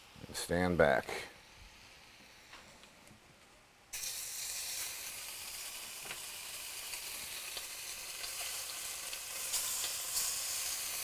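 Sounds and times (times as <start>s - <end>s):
fish sizzling in a hot pan: 3.9s - 11.0s.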